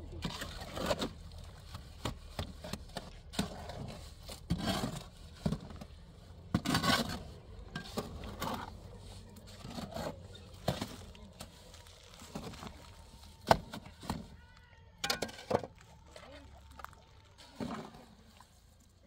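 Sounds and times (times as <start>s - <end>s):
shovel scraping wet mortar: 0.2s - 5.9s, 6.5s - 14.4s.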